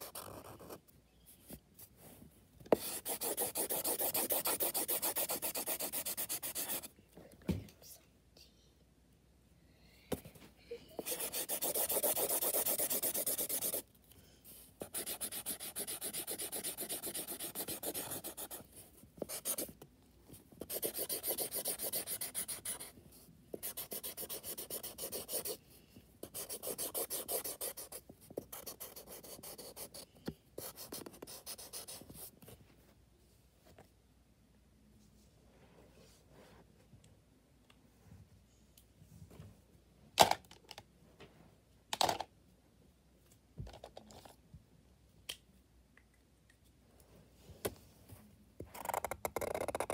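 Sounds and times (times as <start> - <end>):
marker scribbling on paper: 0.0 - 0.8, 2.7 - 6.9, 11.0 - 13.8, 14.8 - 19.7, 20.6 - 22.9, 23.5 - 25.6, 26.2 - 30.0, 30.6 - 32.3.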